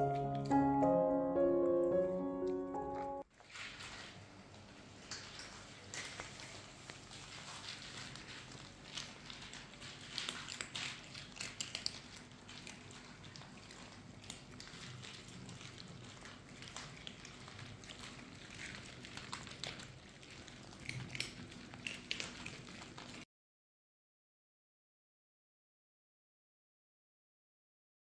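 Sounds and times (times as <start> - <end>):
cats crunching dry kibble: 3.4 - 23.2.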